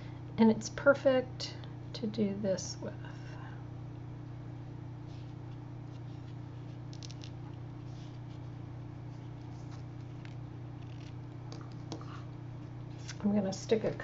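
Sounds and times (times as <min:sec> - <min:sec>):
steady low hum: 0:00.0 - 0:14.0
hands rustling ribbon and card: 0:05.1 - 0:12.1.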